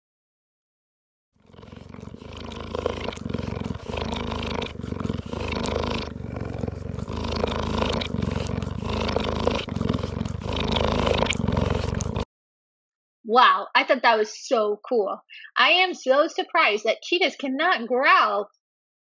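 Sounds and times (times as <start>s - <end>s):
cheetah purring: 1.4s - 12.3s.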